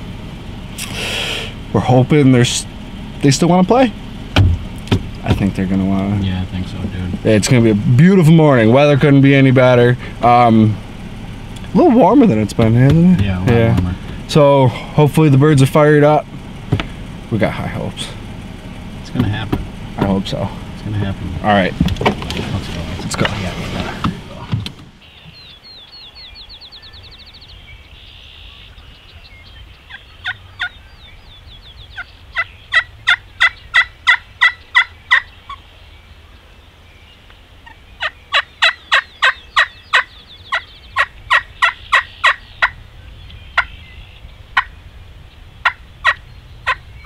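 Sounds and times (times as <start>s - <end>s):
wild turkey yelping: 25.0s - 47.0s.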